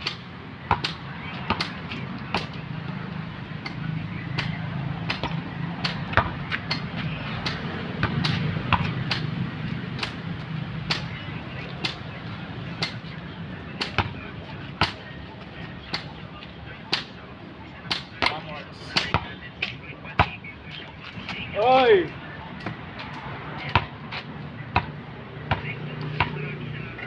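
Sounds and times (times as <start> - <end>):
basketball bouncing on asphalt: 0.0 - 15.2, 15.8 - 21.8, 22.6 - 26.6.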